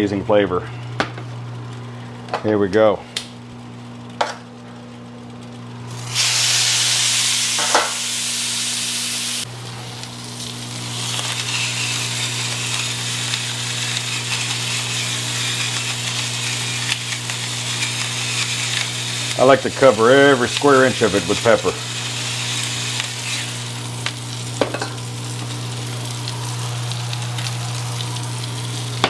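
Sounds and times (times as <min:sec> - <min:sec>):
steak sizzling on grill: 0:05.9 - 0:29.0.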